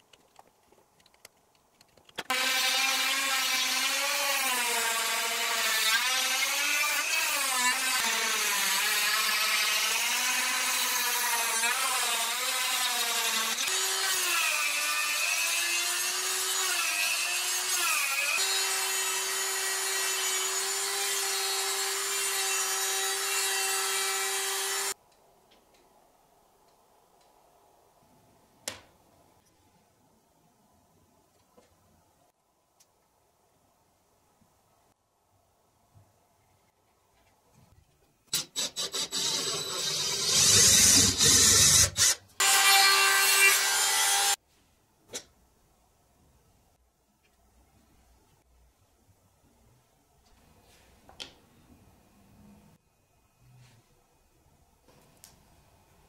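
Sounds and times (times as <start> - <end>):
rotary tool sanding wood: 38.6 - 42.8.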